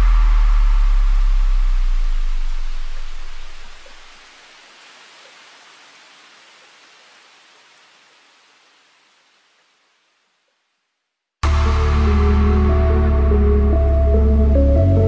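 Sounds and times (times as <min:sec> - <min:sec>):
music with heavy bass line: 0:00.0 - 0:03.0, 0:11.4 - 0:15.0
steady hiss: 0:00.0 - 0:13.4.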